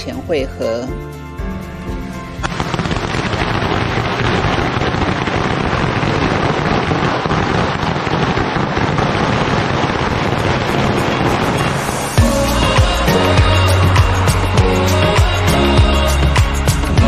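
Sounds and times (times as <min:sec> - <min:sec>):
firecrackers crackling: 0:02.3 - 0:15.5.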